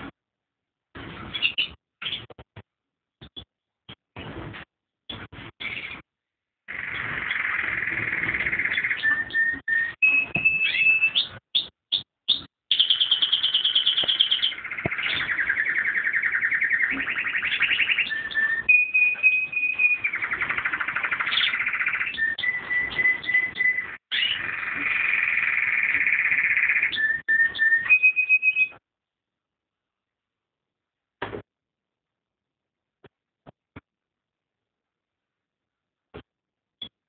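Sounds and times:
canary singing trills: 6.7 - 28.8.

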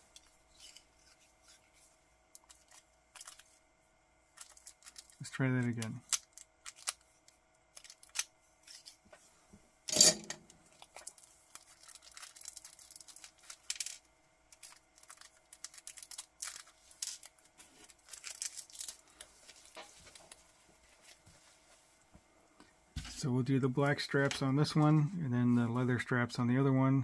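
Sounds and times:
plastic bag crinkling: 2.4 - 3.6, 4.3 - 9.0, 10.5 - 21.1.

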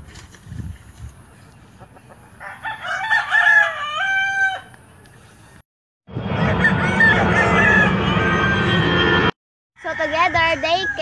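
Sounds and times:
rooster crowing: 2.4 - 4.7, 6.4 - 8.9, 9.8 - 11.0.

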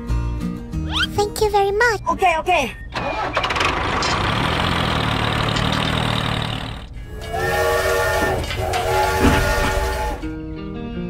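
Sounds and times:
toy train whistle toots: 7.1 - 10.3.

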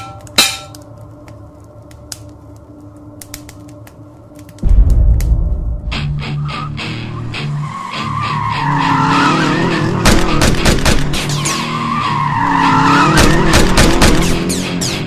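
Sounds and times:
sharp bangs: 4.6 - 7.3.

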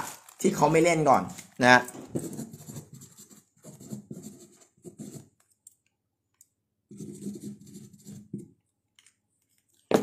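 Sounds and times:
marker pen scratchy strokes: 2.2 - 5.4, 6.9 - 8.6.

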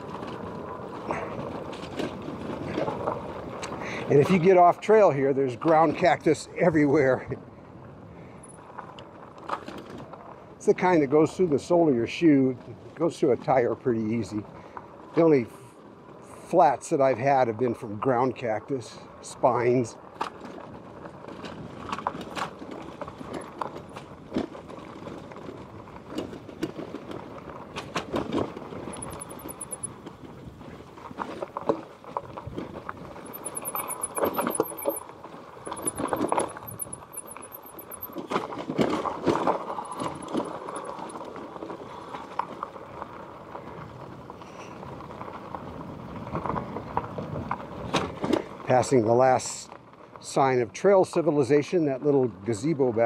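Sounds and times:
rushing of tyres and air: 0.0 - 4.3, 14.4 - 16.5, 20.0 - 48.7
bike rattling and knocking: 20.3 - 42.8
faint high rapid ticking: 28.9 - 29.9, 33.2 - 38.3.

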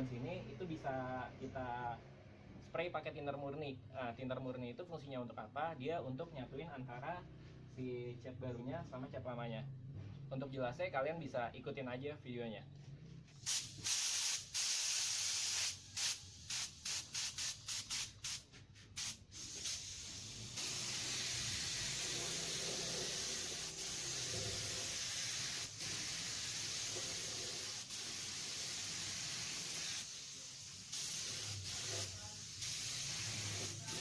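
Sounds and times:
spray gun hissing: 13.4 - 34.0.

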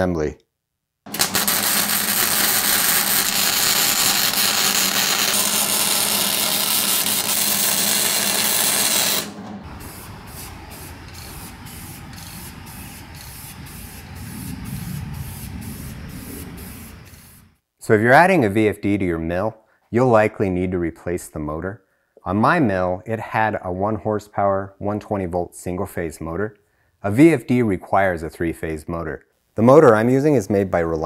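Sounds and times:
spray paint can hissing: 1.1 - 17.5
welder sizzling: 1.1 - 17.5.

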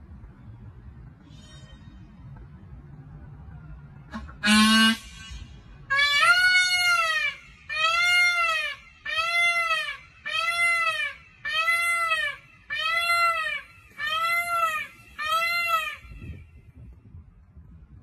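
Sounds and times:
peacock calling: 4.1 - 16.5.

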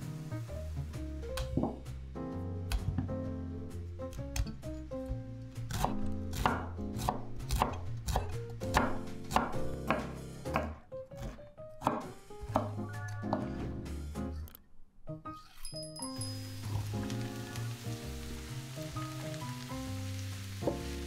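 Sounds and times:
background music: 0.0 - 21.0
knife chopping on wooden board: 5.7 - 13.5.

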